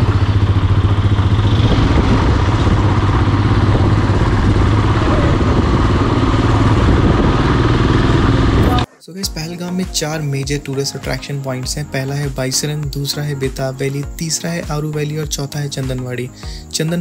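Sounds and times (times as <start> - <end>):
motorcycle engine drone: 0.0 - 8.9.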